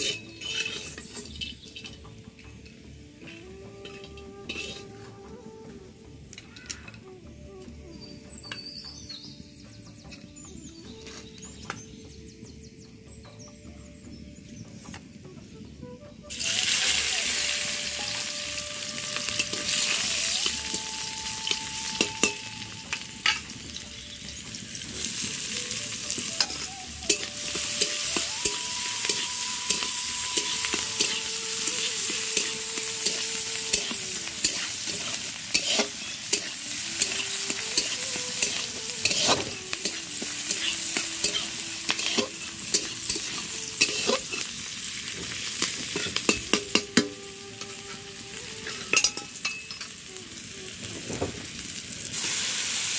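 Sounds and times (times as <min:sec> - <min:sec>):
metal spatula scraping wok: 0:00.0 - 0:05.2, 0:16.4 - 0:50.1
food sizzling in hot oil: 0:00.0 - 0:05.6, 0:16.3 - 0:52.9.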